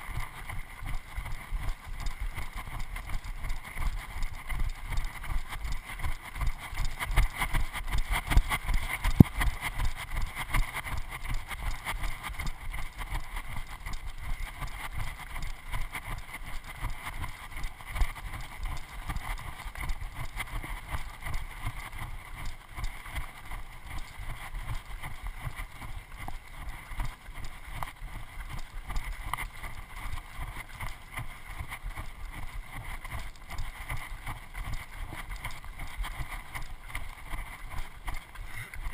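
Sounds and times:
footsteps on stony trail: 0.0 - 38.9.

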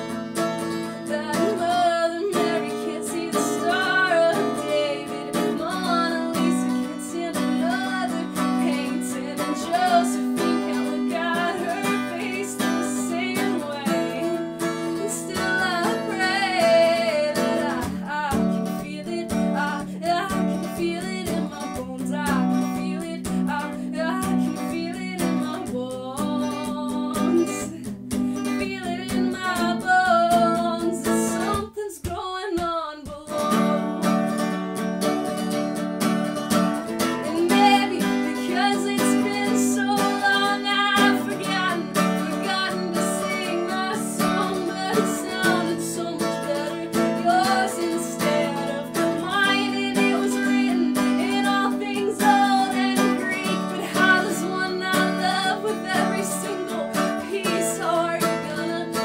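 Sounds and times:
woman singing: 0.0 - 34.5, 36.8 - 59.0
strummed acoustic guitar: 0.0 - 59.0.

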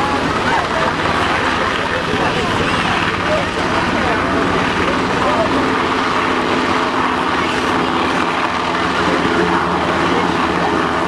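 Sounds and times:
helicopter rotor and turbine noise: 0.0 - 11.0.

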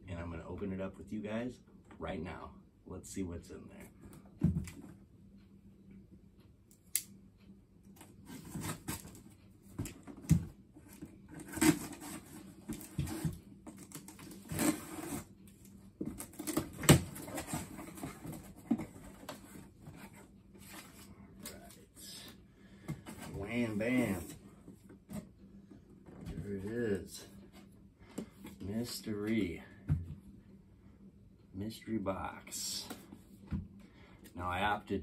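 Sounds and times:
tape tearing: 11.4 - 15.3.

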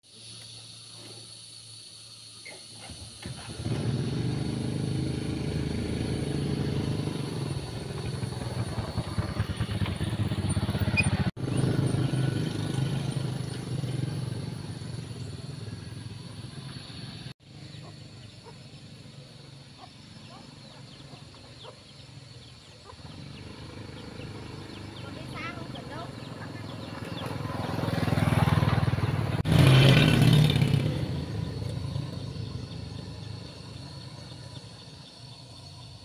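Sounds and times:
small motorbike engines passing: 2.4 - 36.0.

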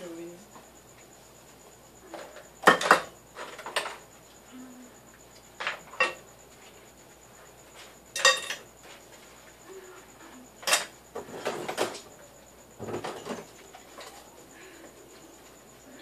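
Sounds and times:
dishes and cutlery clinking: 8.2 - 8.6, 10.6 - 11.9.

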